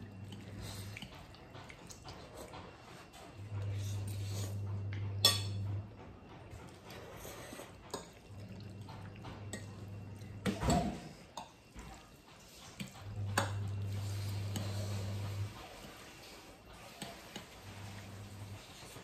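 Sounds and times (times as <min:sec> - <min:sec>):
low steady hum: 0:00.0 - 0:19.0
slurping and chewing noodles: 0:06.5 - 0:10.5, 0:11.2 - 0:19.0.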